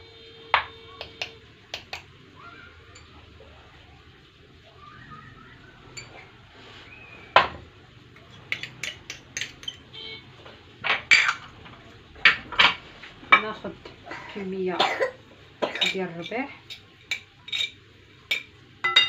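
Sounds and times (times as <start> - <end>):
dish and utensil clinking on bowl: 5.9 - 6.4, 8.2 - 9.9, 10.8 - 14.0, 15.6 - 19.0.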